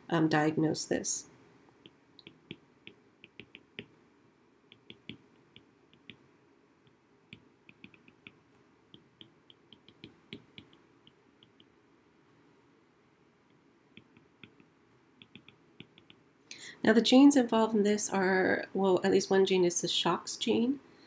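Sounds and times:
stylus tapping on glass screen: 1.8 - 4.0, 4.7 - 6.2, 7.3 - 11.8, 14.0 - 16.2.

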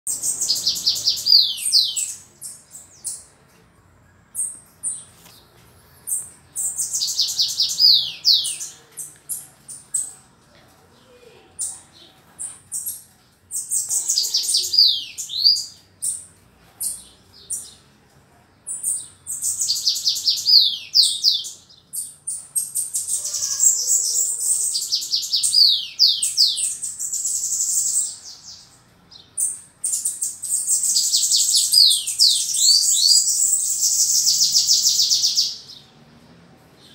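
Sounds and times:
bird singing high rapid notes: 0.1 - 3.4.

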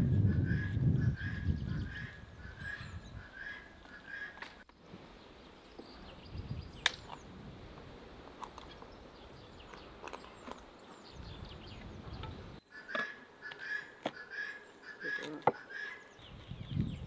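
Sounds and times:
small birds chirping: 0.0 - 7.5, 8.3 - 17.0
high bird trill: 0.2 - 4.4.

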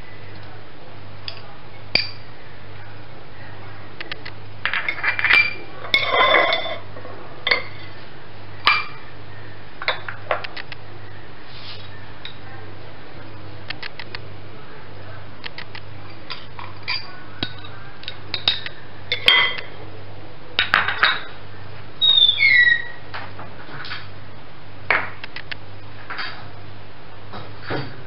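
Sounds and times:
steady low hum: 0.0 - 22.0
dishes clinking and scraping: 4.7 - 8.0, 16.1 - 19.7.

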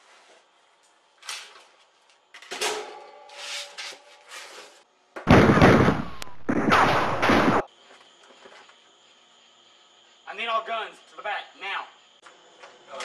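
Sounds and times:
person moving about rustling: 0.0 - 2.3, 3.3 - 4.9
loud bursts of gunfire: 5.3 - 7.6.

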